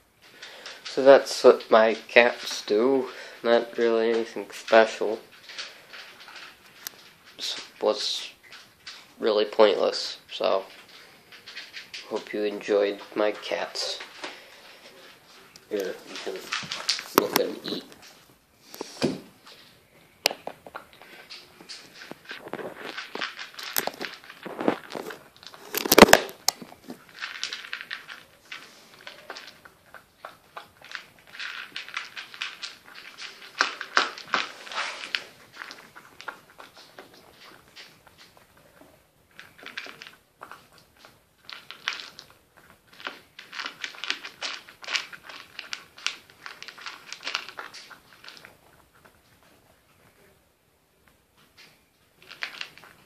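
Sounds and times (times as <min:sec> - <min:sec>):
cat chewing crunches: 0:20.6 - 0:49.8.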